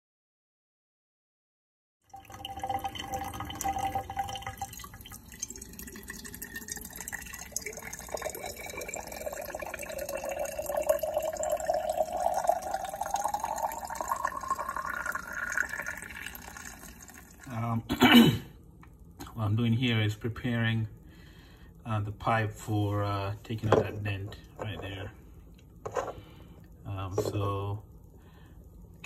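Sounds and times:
tap water filling a pipe: 0:02.1 - 0:17.7, 0:24.3 - 0:28.9.

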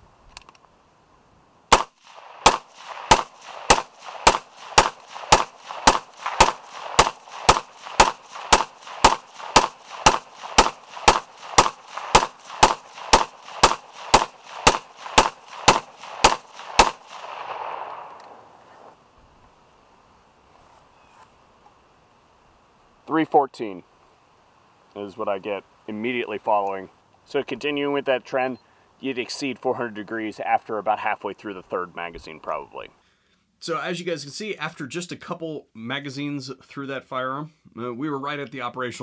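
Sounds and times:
suppressed rifle shots: 0:01.7 - 0:18.6.

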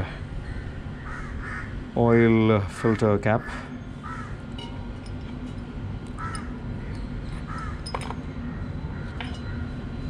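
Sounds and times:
low background hum: 0:00.0 - 0:10.0
bird calling: 0:00.4 - 0:01.8, 0:02.6 - 0:04.6, 0:06.1 - 0:09.8.

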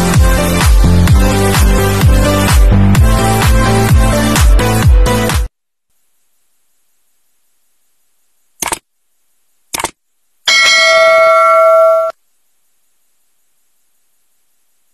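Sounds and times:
mouse clicks: 0:08.6 - 0:08.8, 0:09.7 - 0:10.0
notification bell ringing: 0:10.5 - 0:12.1.

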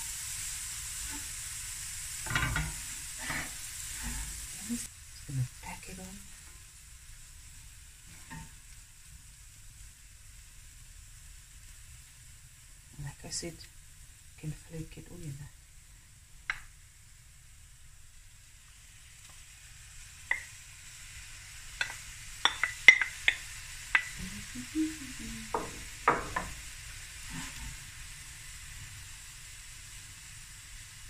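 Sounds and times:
food sizzling in a pan: 0:00.0 - 0:31.0
spoon and bowl knocking on pan: 0:02.3 - 0:03.4, 0:20.3 - 0:20.5, 0:21.8 - 0:24.2, 0:25.5 - 0:26.6.

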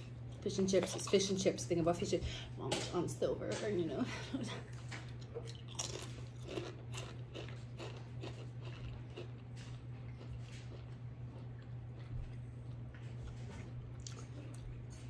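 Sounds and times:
chewing: 0:00.0 - 0:01.3, 0:04.7 - 0:15.0
crisp crunching: 0:05.5 - 0:11.4.

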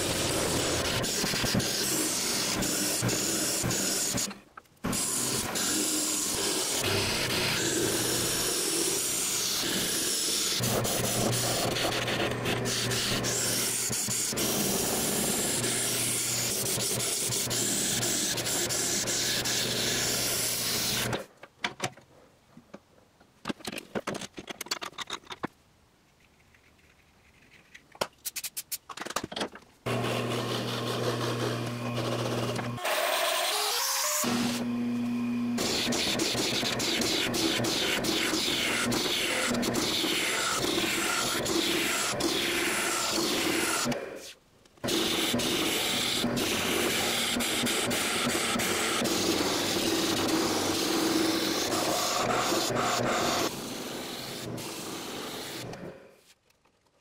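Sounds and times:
wood lathe motor hum: 0:29.9 - 0:42.2
gouge cutting wood on lathe: 0:29.9 - 0:44.0, 0:44.8 - 0:55.9.

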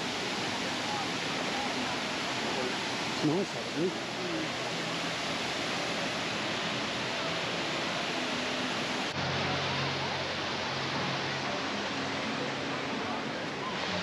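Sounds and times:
crowd chatter: 0:00.0 - 0:14.0
falling water rushing: 0:00.0 - 0:14.0.

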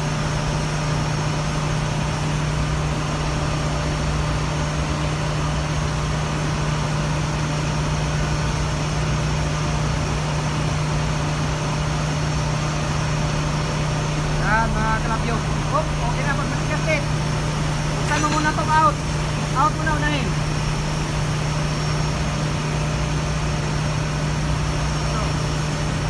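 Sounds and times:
engine room machinery drone: 0:00.0 - 0:26.0.

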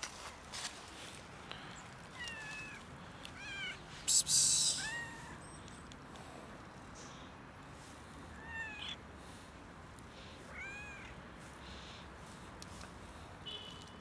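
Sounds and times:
cat meowing: 0:03.4 - 0:03.8, 0:04.7 - 0:05.4, 0:08.4 - 0:09.0, 0:10.5 - 0:11.1.

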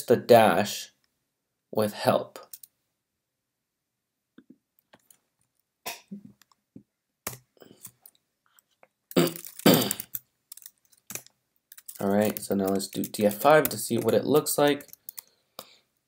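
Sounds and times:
mouth clicks and noises: 0:07.6 - 0:14.2
throat clearing: 0:09.2 - 0:10.1.

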